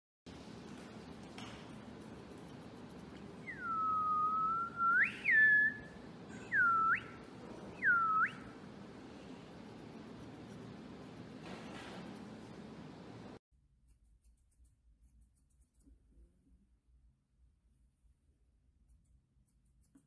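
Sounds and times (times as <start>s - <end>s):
person whistling: 3.4s - 7.2s, 7.8s - 8.5s.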